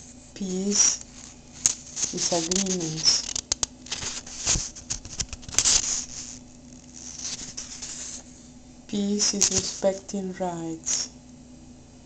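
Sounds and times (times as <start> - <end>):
paper booklet rustling: 0.4 - 8.3, 9.1 - 10.0.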